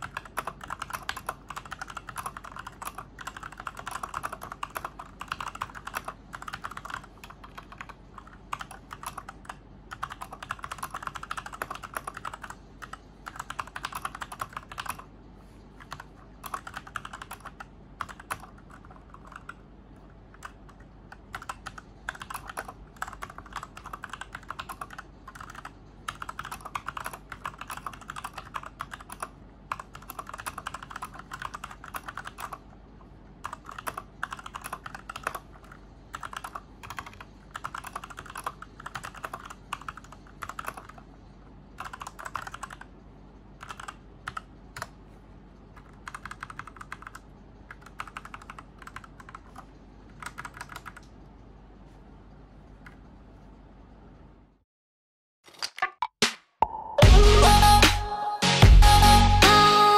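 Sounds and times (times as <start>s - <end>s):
mechanical keyboard typing: 0.0s - 15.1s, 15.8s - 32.7s, 33.4s - 41.1s, 41.7s - 42.9s, 43.6s - 45.0s, 45.7s - 51.1s.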